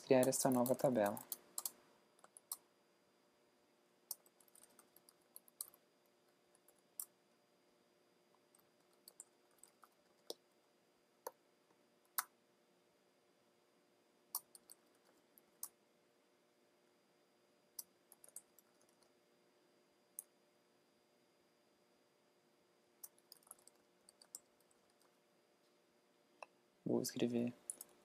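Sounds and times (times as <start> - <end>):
keyboard and mouse clicks: 0.1 - 2.6, 4.1 - 5.8, 6.5 - 7.2, 8.4 - 10.4, 14.3 - 15.8, 17.8 - 19.1, 23.0 - 25.2, 27.6 - 28.0.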